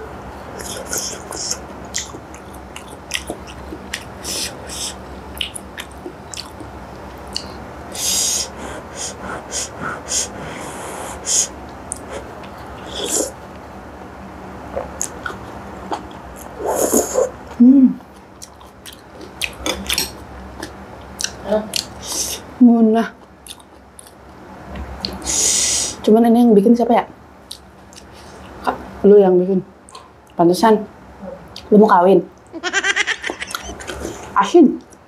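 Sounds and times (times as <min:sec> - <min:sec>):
chewing: 0:00.6 - 0:07.6, 0:14.8 - 0:21.9, 0:23.2 - 0:25.2.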